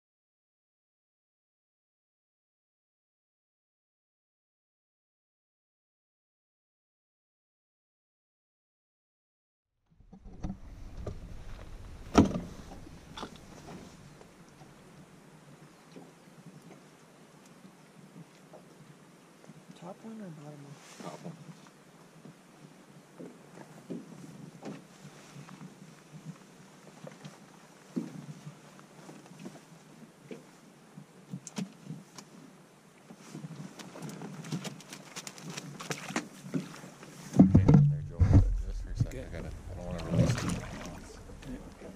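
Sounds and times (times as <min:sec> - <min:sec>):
knocks and clatter in boat: 0:10.1 - 0:14.4, 0:23.1 - 0:26.4, 0:33.1 - 0:41.9.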